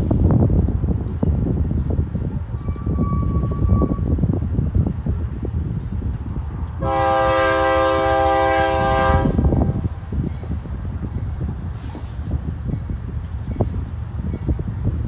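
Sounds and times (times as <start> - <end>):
train rumbling: 0.0 - 15.0
locomotive air horn blast: 6.8 - 9.7.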